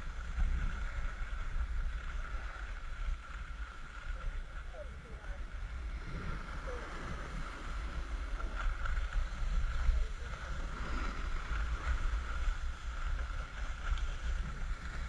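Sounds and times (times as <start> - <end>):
wind buffeting microphone: 0.0 - 15.0
skis hissing over snow: 6.5 - 15.0.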